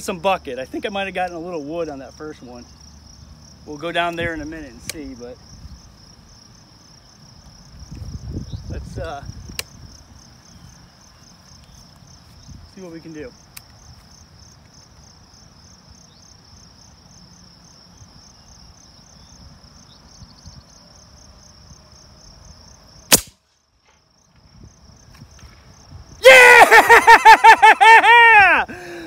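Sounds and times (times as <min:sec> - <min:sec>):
insects chirping: 0:00.0 - 0:29.0
air rifle shot: 0:23.1 - 0:23.4
man yelling and whooping: 0:26.2 - 0:29.0.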